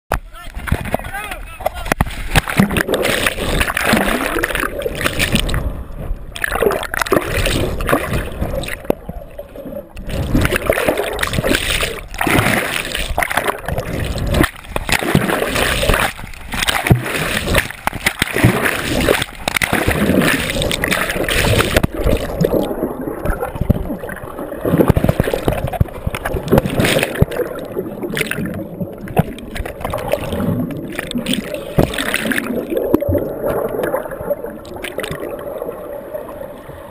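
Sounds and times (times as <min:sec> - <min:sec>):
water splashing and gurgling: 0:00.1 - 0:36.9.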